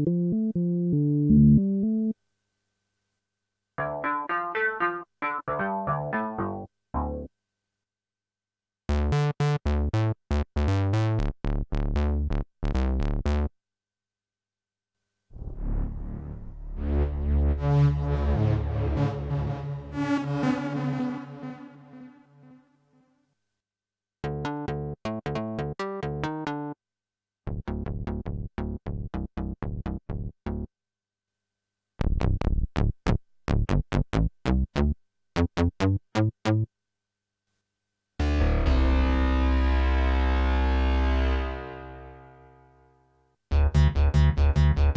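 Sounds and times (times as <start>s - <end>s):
synthesizer bass notes: 5.5s - 7.3s, 15.4s - 22.3s.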